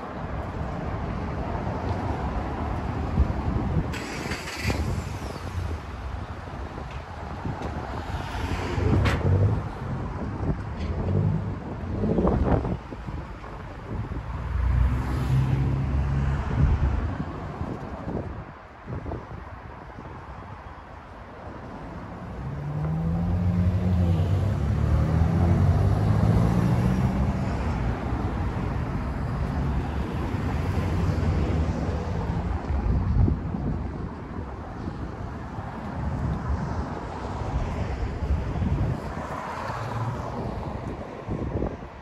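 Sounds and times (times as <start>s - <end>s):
city street traffic: 0.0s - 42.0s
vehicle engine accelerating past: 22.5s - 27.4s.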